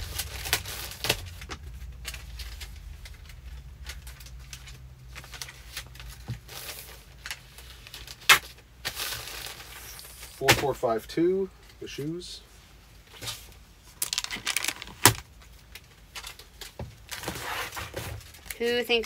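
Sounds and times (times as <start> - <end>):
papers and plastic mailers rustling: 0.0 - 11.0, 13.0 - 19.0
low steady hum: 0.0 - 19.0.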